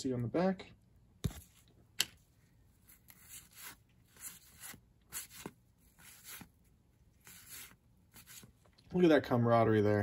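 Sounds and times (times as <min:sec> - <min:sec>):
cards swishing against each other: 0:01.2 - 0:08.8.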